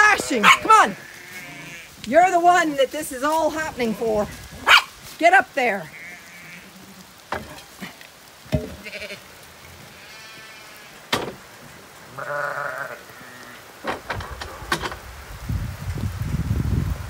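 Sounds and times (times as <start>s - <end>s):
sheep bleating: 0.0s - 2.0s, 5.8s - 7.7s, 8.6s - 9.3s, 9.9s - 11.1s, 12.1s - 13.6s
sharp knocks: 8.5s - 8.8s, 11.1s - 11.4s.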